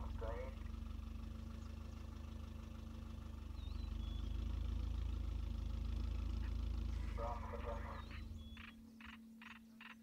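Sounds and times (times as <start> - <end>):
vehicle engine idling: 0.0 - 10.0
bird chirp: 3.4 - 4.8, 7.0 - 10.0.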